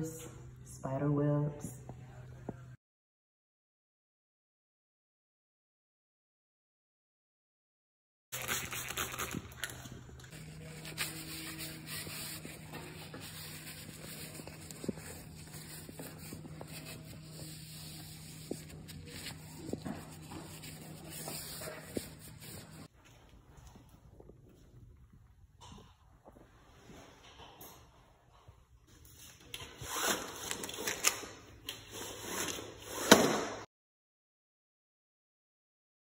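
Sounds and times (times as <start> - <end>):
steady low hum: 9.4 - 26.6
cloth rubbing over window sill: 10.4 - 22.9.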